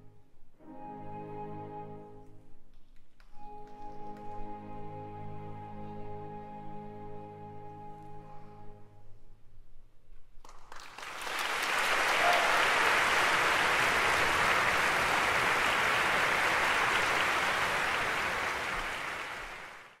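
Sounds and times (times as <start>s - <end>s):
audience applauding: 10.4s - 20.0s.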